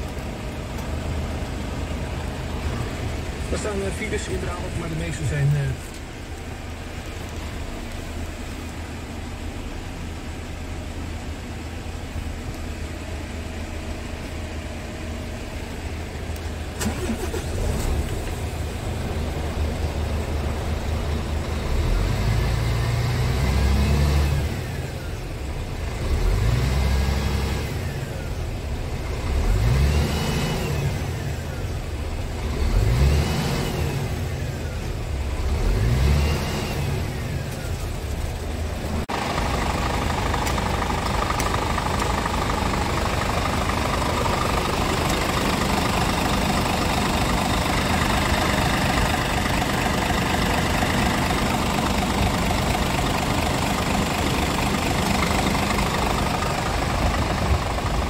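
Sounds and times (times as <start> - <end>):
diesel engine idling: 0.0 - 58.0
engine revving: 16.8 - 25.2, 25.8 - 58.0.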